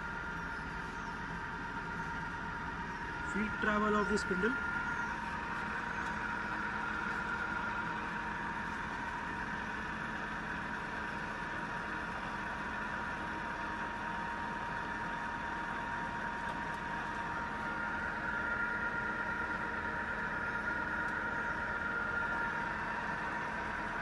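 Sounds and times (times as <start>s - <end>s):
drilling machine humming with gear whine: 0.0s - 24.0s.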